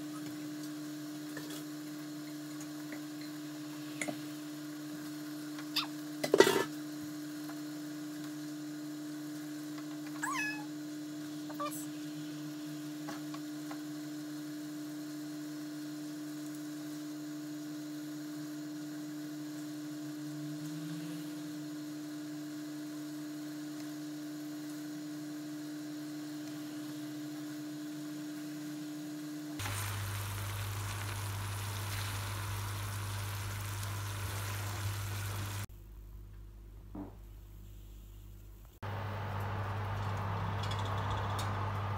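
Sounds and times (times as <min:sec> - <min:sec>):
steady hum: 0:16.0 - 0:36.8
pasta sizzling in a pan: 0:29.6 - 0:35.7.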